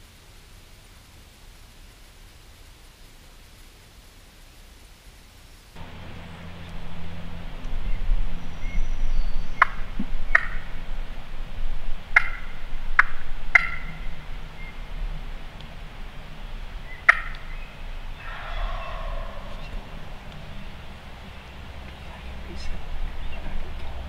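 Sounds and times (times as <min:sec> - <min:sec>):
wild turkey calling: 0:05.8 - 0:24.0
turkey rolling gobble: 0:05.9 - 0:11.2, 0:12.1 - 0:15.1, 0:16.8 - 0:22.0.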